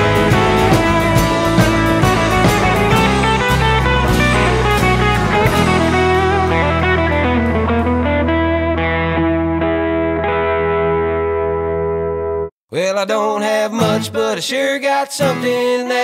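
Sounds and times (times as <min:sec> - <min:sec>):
drum hits: 0:00.0 - 0:07.4
bass notes: 0:00.0 - 0:12.5
guitar playing: 0:00.0 - 0:12.5.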